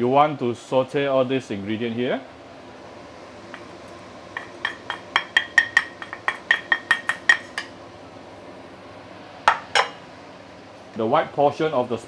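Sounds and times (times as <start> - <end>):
utensil tapping ceramic plate: 4.4 - 7.7.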